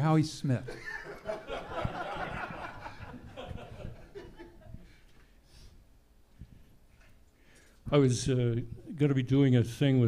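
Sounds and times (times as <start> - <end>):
faint breath: 4.8 - 5.8, 6.4 - 7.8.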